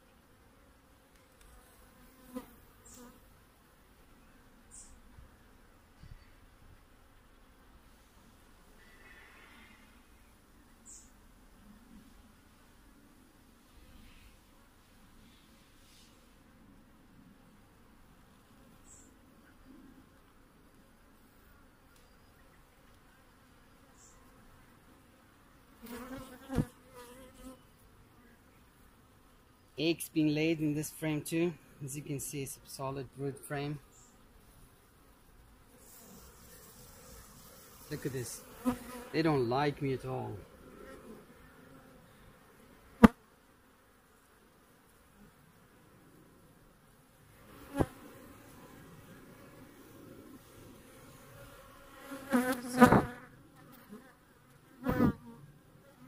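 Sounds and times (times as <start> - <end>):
bees buzzing: 35.8 - 43.2, 47.3 - 54.0.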